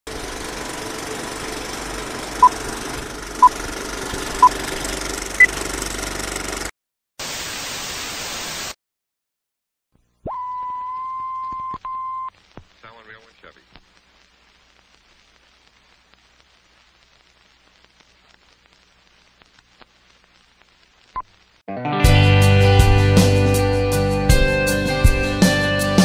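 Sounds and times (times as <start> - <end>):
tv static burst: 7.2 - 8.8, 12.3 - 21.6
steady hiss: 12.3 - 21.6.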